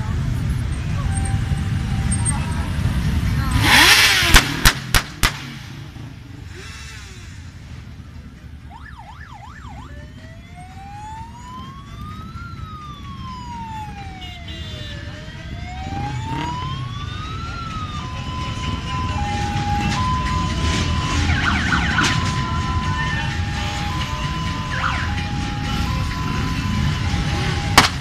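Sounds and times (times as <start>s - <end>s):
motorcycle engines running: 0.0s - 6.6s, 9.8s - 28.0s
electronic siren yelping and wailing: 8.7s - 27.8s.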